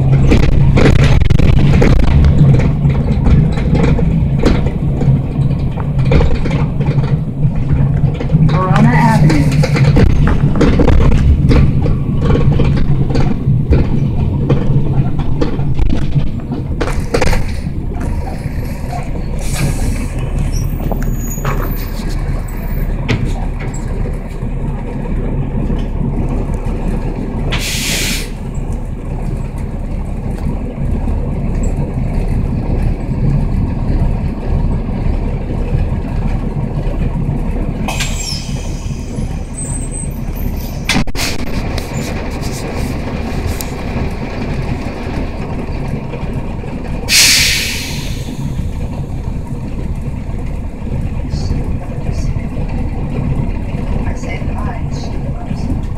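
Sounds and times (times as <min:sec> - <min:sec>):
bus diesel engine rumbling: 0:00.0 - 0:55.9
compressed air hiss: 0:27.6 - 0:28.4, 0:47.1 - 0:48.4.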